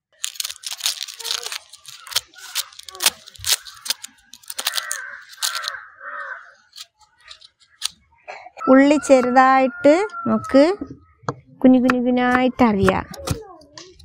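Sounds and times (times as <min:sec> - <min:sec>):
knife scraping onion skin: 0:00.2 - 0:07.9.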